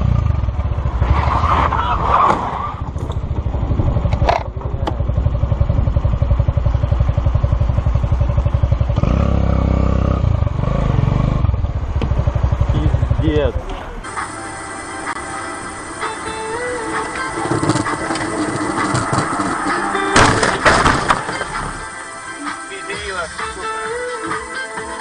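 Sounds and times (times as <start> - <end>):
motorcycle engine revving: 0.0 - 21.9.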